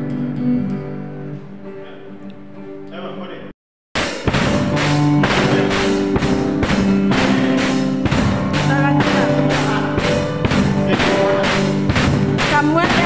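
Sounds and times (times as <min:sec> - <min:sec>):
acoustic guitars strummed: 0:04.0 - 0:13.0
band playing live: 0:04.0 - 0:13.0.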